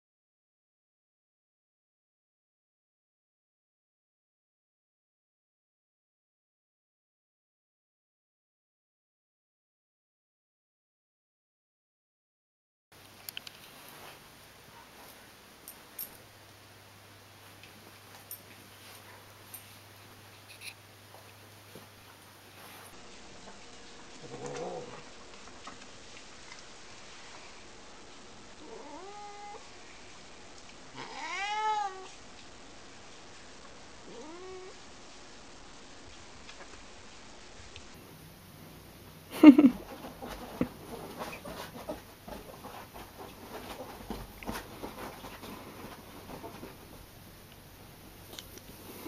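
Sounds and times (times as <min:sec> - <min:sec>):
cat moaning: 0:24.2 - 0:25.1, 0:28.6 - 0:29.7, 0:30.9 - 0:32.2, 0:34.1 - 0:34.8
ferrets scuffling on bedding: 0:39.8 - 0:47.1.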